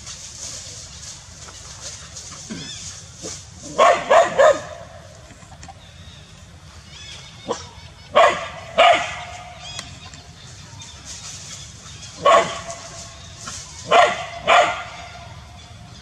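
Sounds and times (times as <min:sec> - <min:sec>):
dog barking: 0:03.7 - 0:04.8, 0:08.2 - 0:09.3, 0:12.2 - 0:12.8, 0:13.9 - 0:15.1.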